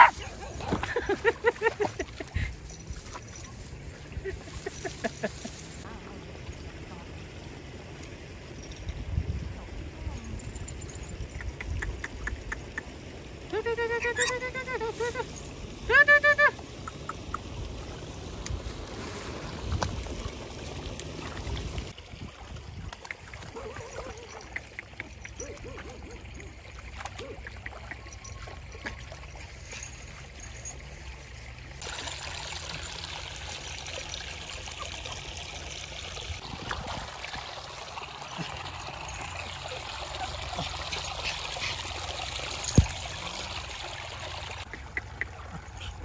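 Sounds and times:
stream trickling over stones: 0:00.0 - 0:46.0
water splashing from dog swimming: 0:16.9 - 0:30.7, 0:31.4 - 0:46.0.

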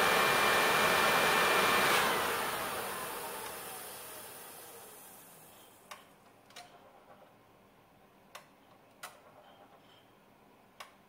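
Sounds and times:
heating burner rushing: 0:00.0 - 0:05.6.

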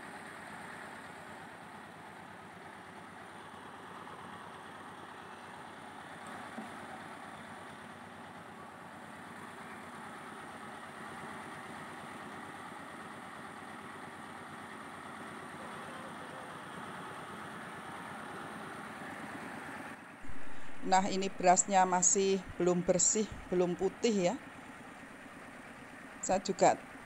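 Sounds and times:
rice milling machinery running: 0:00.0 - 0:27.0.

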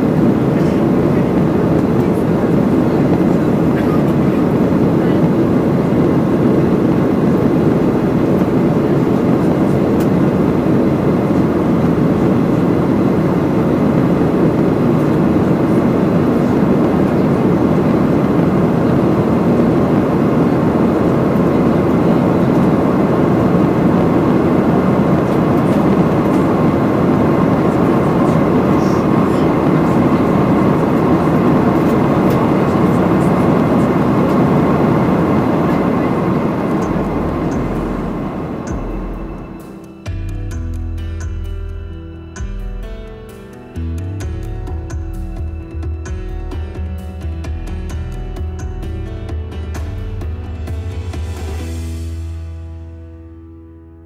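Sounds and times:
rushing air: 0:00.0 - 0:39.9
jet engines: 0:00.0 - 0:40.1.

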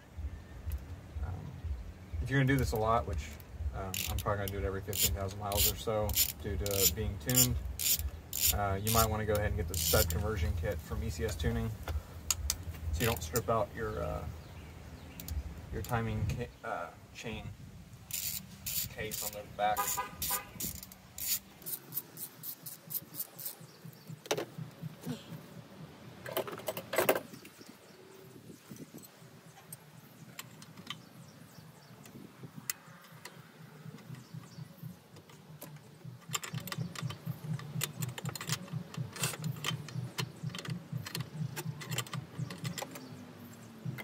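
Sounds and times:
hand ratchet clicking: 0:02.6 - 0:10.8, 0:18.1 - 0:24.0, 0:32.6 - 0:44.0
tools clinking: 0:05.0 - 0:10.2, 0:18.1 - 0:23.6, 0:35.2 - 0:43.2.

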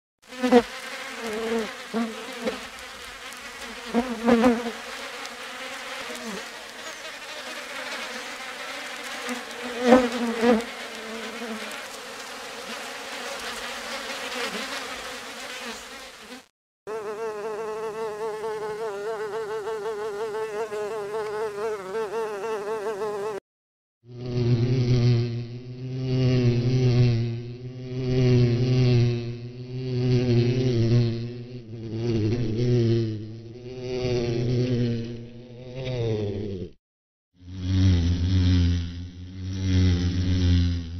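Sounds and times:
flies buzzing: 0:00.3 - 0:23.4.

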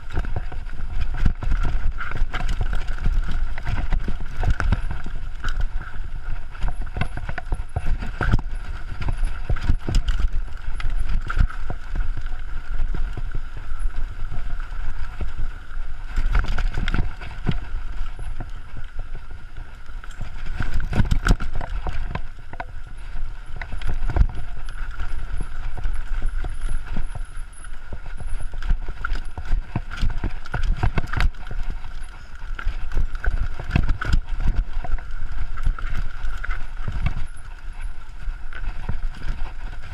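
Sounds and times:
bike knocks and rattles: 0:00.0 - 0:13.9
bike tyres rumbling over dirt: 0:00.0 - 0:39.9.

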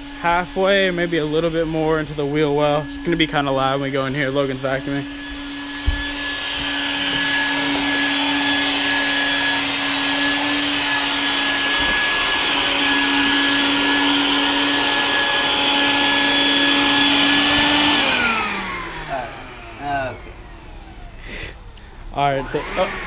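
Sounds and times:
vacuum cleaner running: 0:00.0 - 0:23.0.

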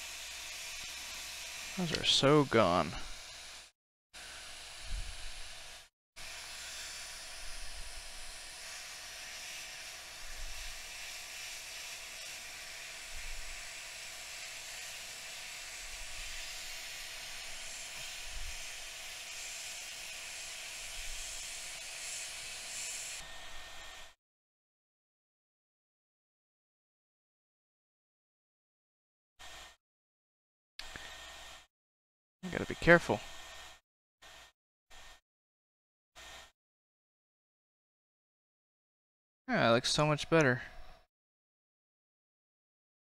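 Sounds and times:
hot-air station airflow hiss: 0:01.8 - 0:03.1.

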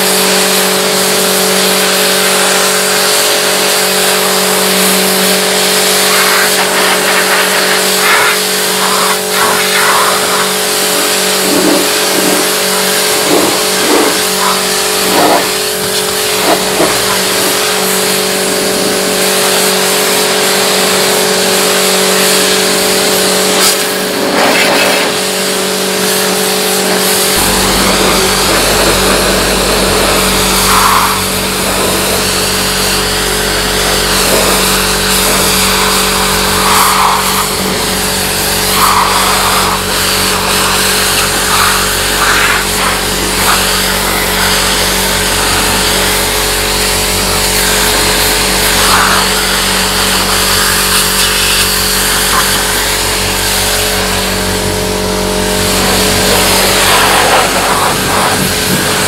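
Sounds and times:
high-pressure water jet hissing: 0:00.0 - 0:59.0
pressure washer pump hum: 0:00.0 - 0:59.0
deep low rumble: 0:27.2 - 0:35.0.

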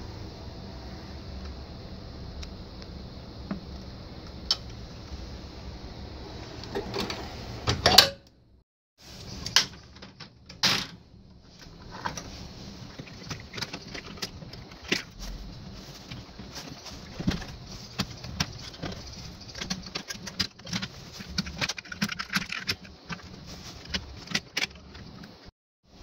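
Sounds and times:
steady low hum: 0:00.0 - 0:09.8, 0:10.4 - 0:26.0
scraping and rustling: 0:11.3 - 0:25.5.

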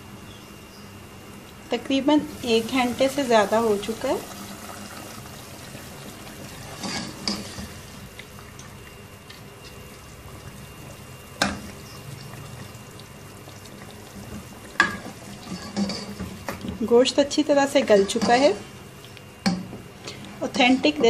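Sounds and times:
stew bubbling: 0:02.3 - 0:16.8.

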